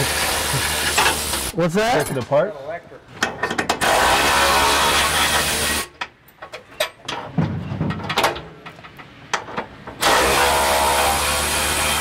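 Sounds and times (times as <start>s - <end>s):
tools and metal clattering: 0.9s - 2.4s, 3.1s - 3.9s, 6.0s - 10.0s.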